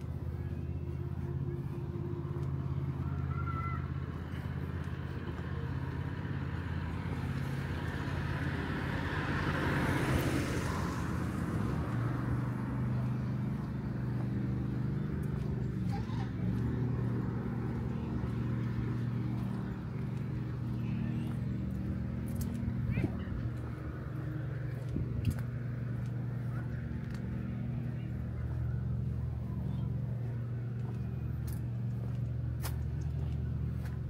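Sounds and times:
car passing: 0.0 - 34.0
low engine hum: 0.0 - 34.0.

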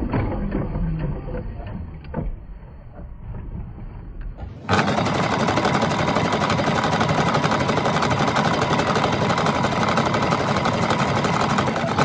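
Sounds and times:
sewing machine running: 4.5 - 12.0.

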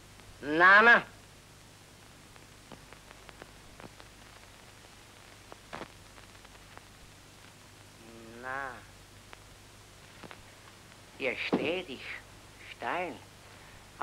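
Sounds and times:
film soundtrack hiss and hum: 0.0 - 14.0
faint clicks: 2.0 - 4.5.

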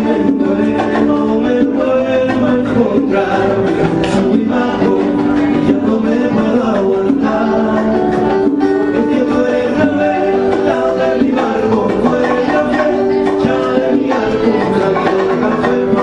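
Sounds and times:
acoustic guitar strumming: 0.0 - 16.0
electric guitar: 0.0 - 16.0
man singing: 0.0 - 16.0.

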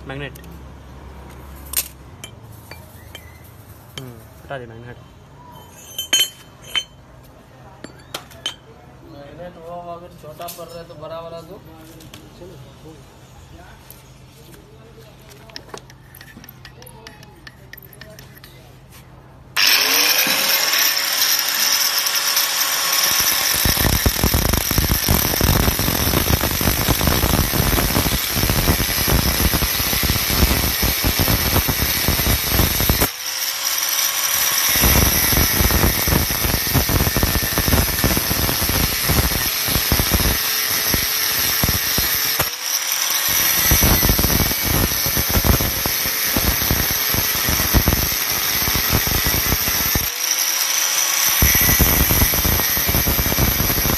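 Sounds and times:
angle grinder cutting steel rod: 19.6 - 53.9.

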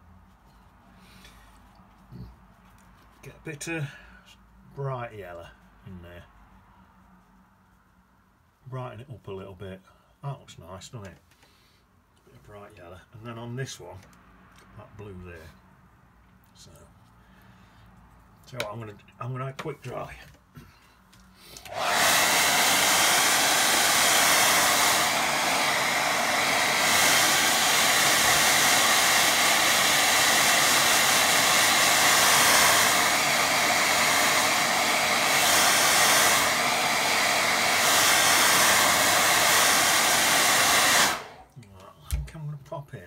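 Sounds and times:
hair dryer blowing: 21.5 - 41.5.

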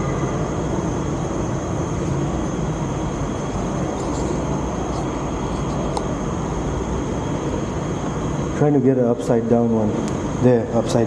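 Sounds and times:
low hum: 0.0 - 8.6
rushing background noise: 0.0 - 11.0.

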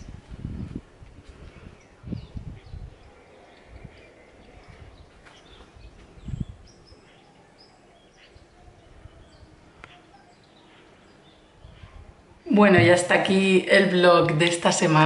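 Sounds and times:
low thump: 12.7 - 13.1.

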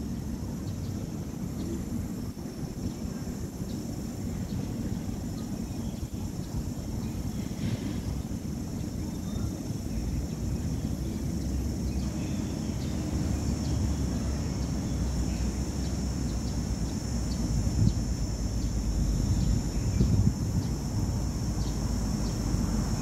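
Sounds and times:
high hiss: 0.0 - 23.0
faint bird chirps: 2.8 - 16.6.

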